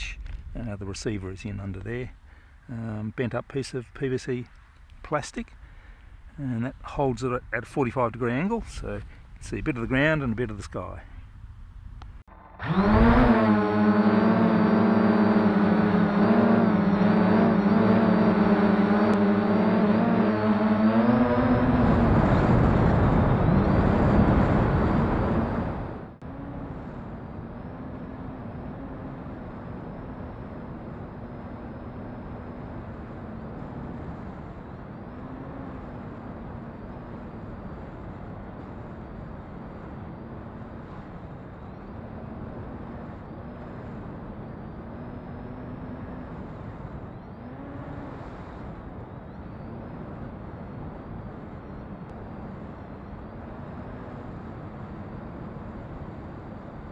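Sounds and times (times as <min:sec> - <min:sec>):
electric motors and propellers: 0:12.3 - 0:56.9.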